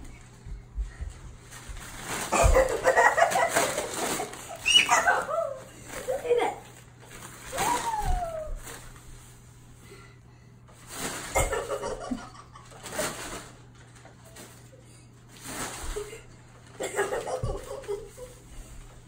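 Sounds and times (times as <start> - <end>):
paper crinkling over carpet: 0.1 - 9.6.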